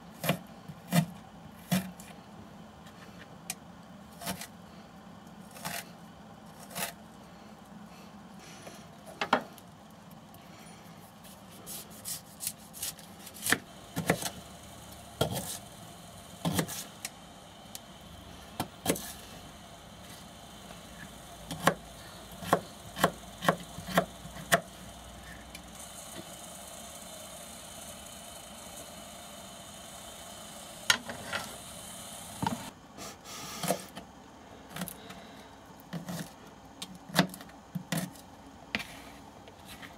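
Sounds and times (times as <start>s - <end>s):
knife chopping vegetables on board: 15.2s - 15.6s, 16.4s - 16.8s, 18.6s - 19.1s, 21.5s - 21.8s, 22.4s - 24.6s.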